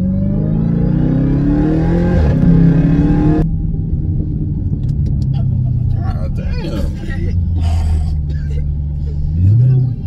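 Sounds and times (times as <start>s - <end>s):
car engine accelerating hard: 0.0s - 6.8s, 8.8s - 10.0s.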